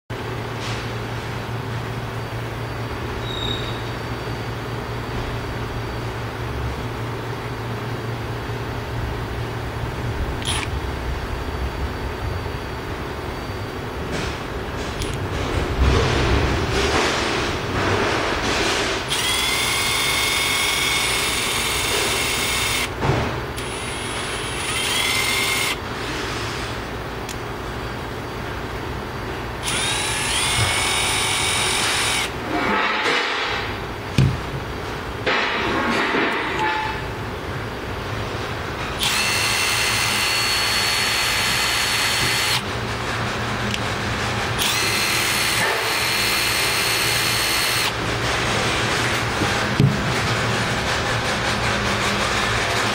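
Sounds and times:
impact driver motor whine: 0:10.4 - 0:10.8, 0:19.0 - 0:23.0, 0:23.6 - 0:25.8, 0:29.6 - 0:32.4, 0:39.0 - 0:42.6, 0:44.6 - 0:48.0.

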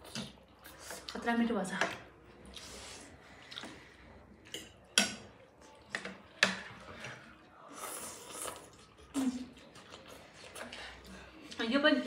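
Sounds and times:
noodle slurp: 0:07.7 - 0:11.0.

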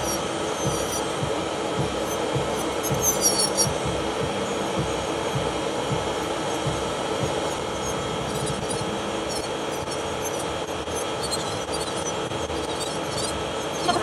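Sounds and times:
electric nail drill grinding: 0:00.0 - 0:01.2, 0:01.8 - 0:03.8, 0:06.2 - 0:14.0
dust collector fan whirring: 0:00.0 - 0:14.0.

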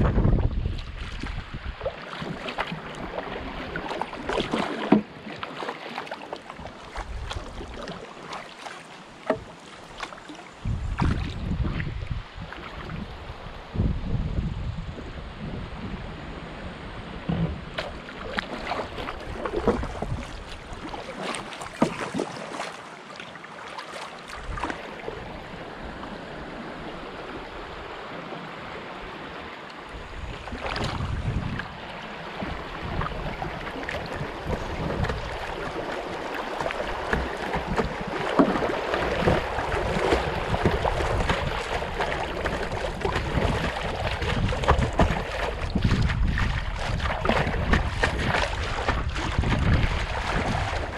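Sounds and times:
paddle splashes: 0:00.0 - 0:13.8, 0:16.0 - 0:50.9
water splashing and rushing: 0:00.0 - 0:50.9.

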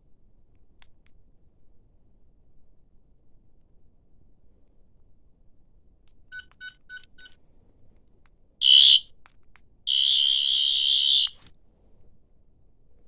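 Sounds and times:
toy high electronic buzz: 0:08.6 - 0:09.1, 0:09.9 - 0:11.4.

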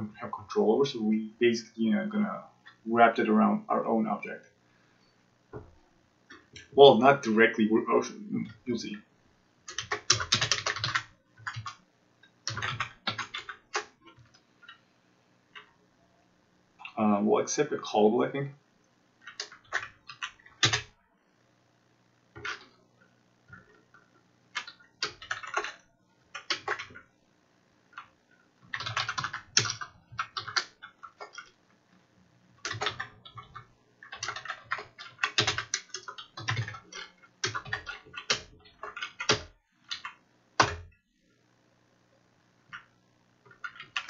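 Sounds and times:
computer keyboard typing: 0:09.7 - 0:11.8, 0:12.4 - 0:14.8, 0:19.2 - 0:20.9, 0:22.4 - 0:22.8, 0:23.5 - 0:27.1, 0:27.9 - 0:31.6, 0:32.6 - 0:41.0, 0:42.7 - 0:44.0.

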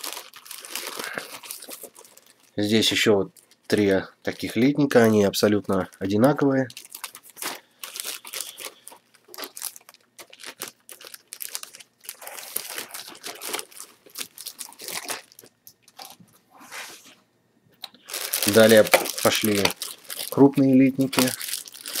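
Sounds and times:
cellophane crinkling: 0:00.0 - 0:16.4, 0:17.8 - 0:22.0.

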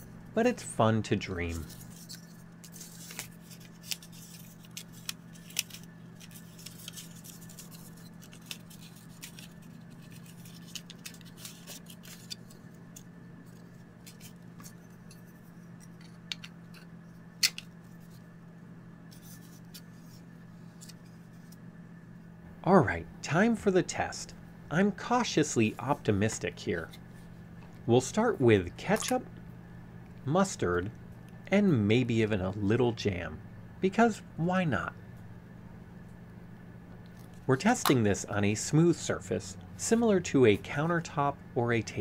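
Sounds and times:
steady low hum: 0:00.0 - 0:42.0
paper rustling: 0:01.5 - 0:18.3.

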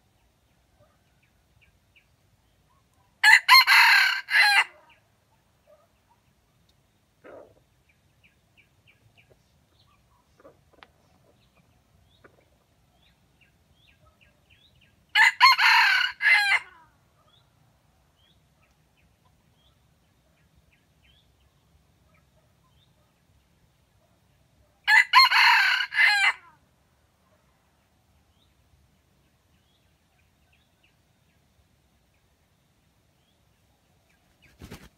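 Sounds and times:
rooster crowing: 0:03.2 - 0:04.8, 0:15.2 - 0:16.8, 0:24.9 - 0:26.5.

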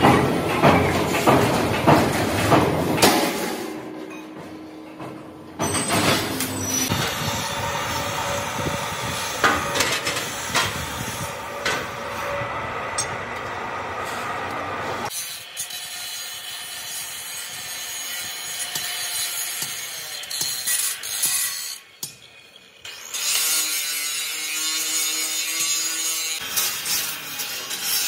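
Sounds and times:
metal clatter of steel sheet: 0:00.0 - 0:07.2, 0:09.4 - 0:12.0
steel sheet clanking on metal: 0:00.0 - 0:12.4
steady mechanical noise: 0:00.0 - 0:21.1.

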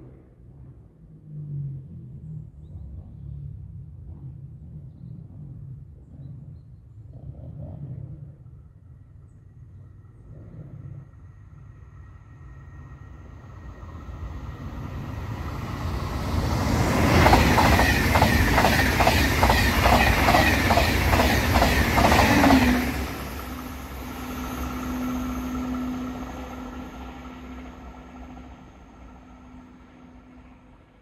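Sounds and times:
train passing at speed: 0:09.9 - 0:31.0
wheels clattering on rails: 0:15.6 - 0:24.1.

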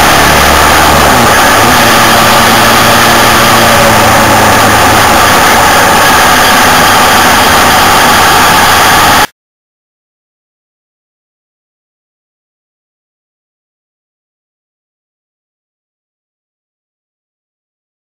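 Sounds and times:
motorcycle engine hum: 0:00.0 - 0:09.3
road and chain noise: 0:00.0 - 0:09.3.

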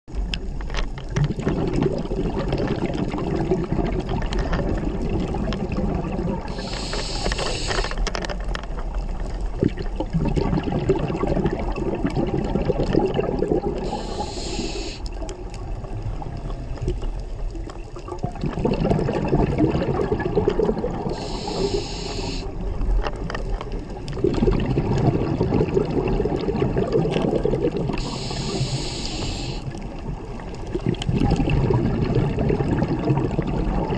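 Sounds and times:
exhaled bubbles: 0:00.2 - 0:33.9
regulator inhalation hiss: 0:06.5 - 0:08.0, 0:13.8 - 0:15.2, 0:21.1 - 0:22.6, 0:28.0 - 0:29.8.

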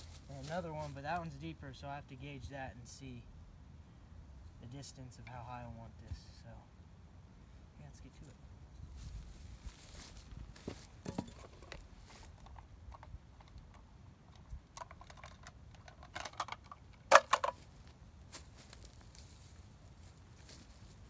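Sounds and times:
footsteps in dry leaves: 0:00.0 - 0:01.2, 0:08.9 - 0:11.0, 0:17.6 - 0:21.0.

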